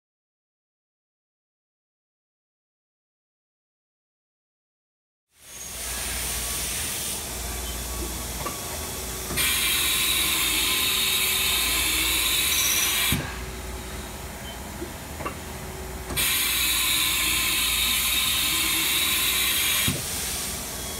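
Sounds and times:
hiss: 5.4 - 7.3, 9.3 - 13.4, 16.1 - 20.9
machine hum: 5.5 - 20.9.

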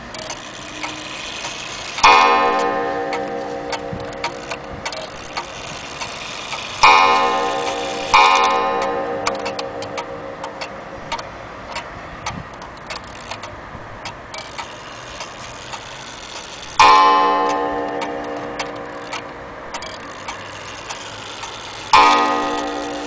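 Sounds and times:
clock ticking: 0.0 - 23.0
clock gong ringing: 0.6 - 11.2, 16.7 - 23.0.

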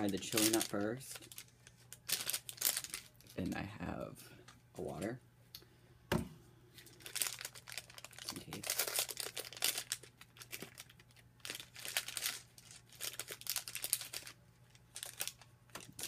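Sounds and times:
wrapper being torn open: 0.0 - 3.5, 6.9 - 16.0
plastic wrapper crinkling: 0.0 - 3.7, 6.8 - 16.0.

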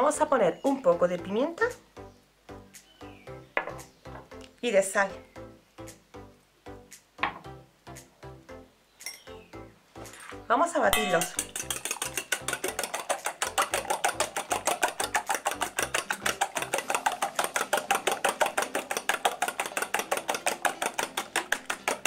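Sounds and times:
whisk clicking in metal bowl: 11.0 - 22.0.

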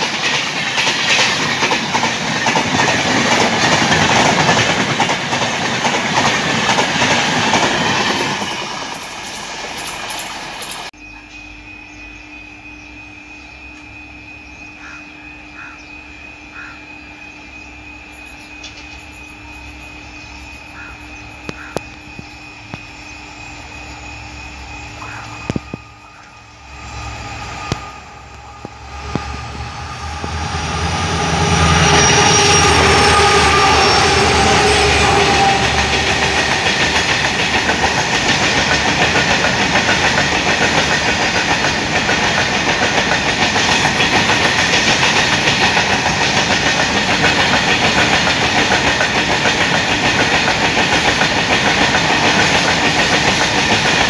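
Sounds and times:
wagons rattling over rails: 0.0 - 10.9, 31.8 - 54.0
diesel locomotive engine rumble: 0.0 - 54.0.

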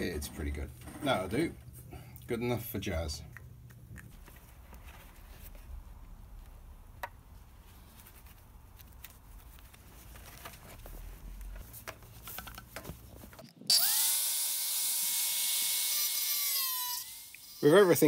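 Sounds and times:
handling clicks and taps: 11.6 - 13.5
angle grinder whining: 13.6 - 18.0.

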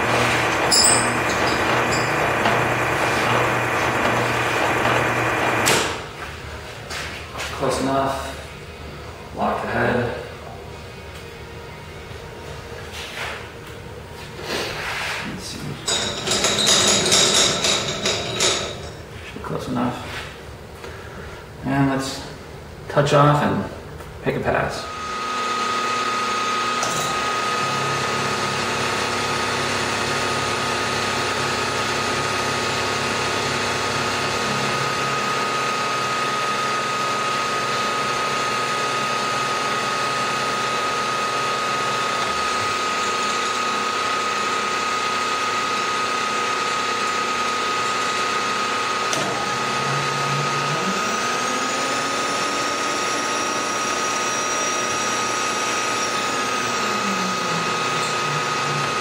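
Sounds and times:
milling machine whining: 0.0 - 13.4, 14.4 - 19.3, 24.8 - 59.0.

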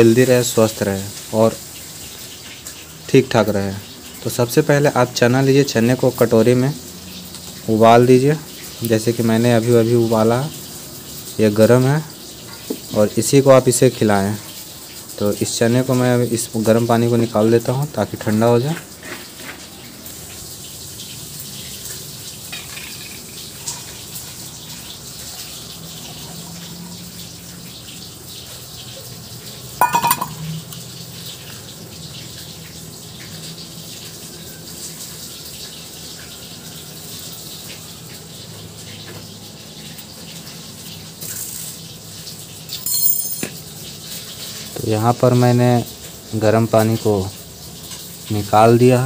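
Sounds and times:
water trickling onto concrete: 0.0 - 49.0
loud ringing knock: 29.8 - 30.4.

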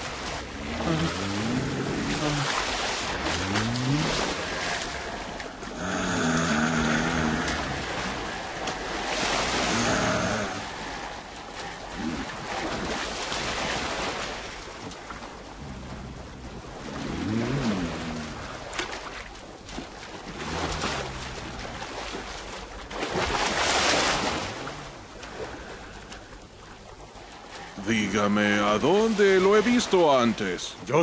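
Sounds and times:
wind and surf-like rushing: 27.1 - 31.0.

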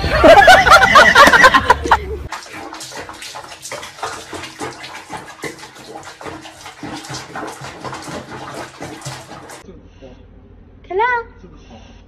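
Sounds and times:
water splashing and sloshing: 0.5 - 9.6.

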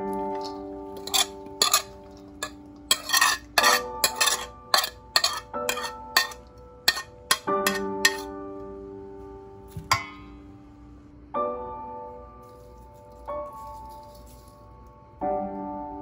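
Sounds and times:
spoon scraping metal bowl: 0.2 - 8.3.

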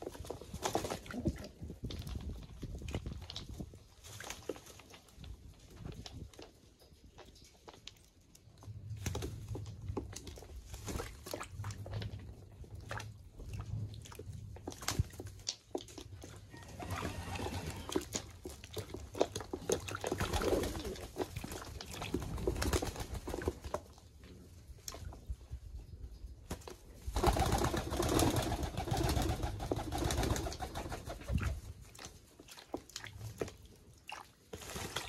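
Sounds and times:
pigeons splashing and flapping: 0.0 - 6.3, 8.8 - 24.0, 26.5 - 35.0.

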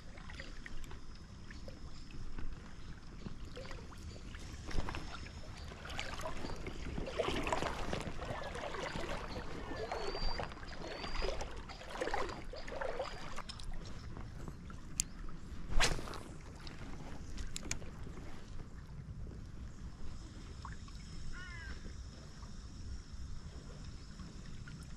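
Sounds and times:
river water sloshing and splashing: 0.0 - 19.2.

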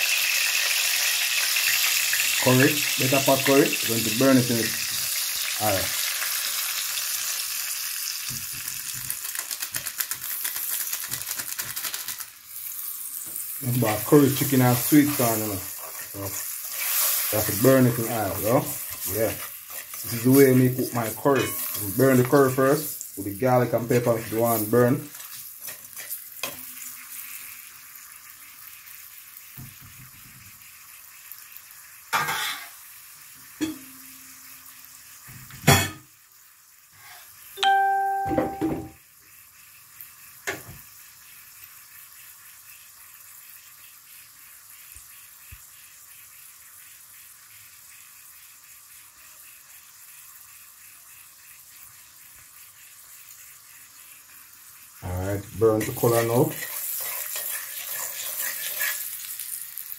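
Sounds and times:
spices sizzling in oil: 0.0 - 59.9
short ringing metallic tone: 37.6 - 39.0.

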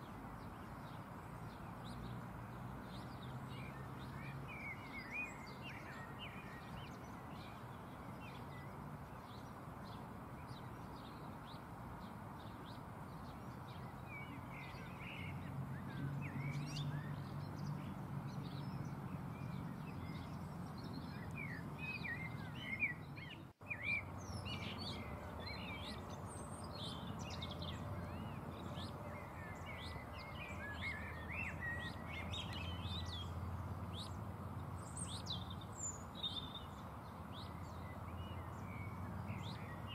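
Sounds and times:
small birds chirping: 0.0 - 39.9.

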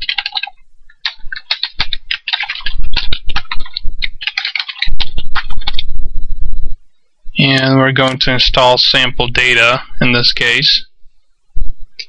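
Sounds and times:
computer keyboard typing: 0.0 - 5.9.

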